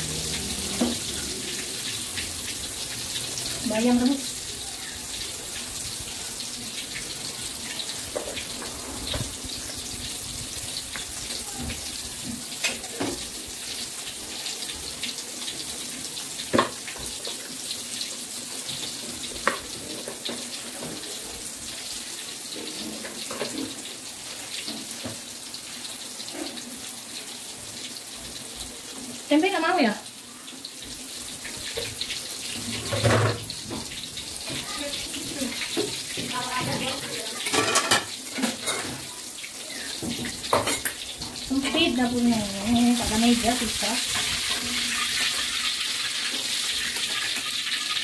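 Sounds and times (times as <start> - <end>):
tofu sizzling in oil: 0.0 - 48.0.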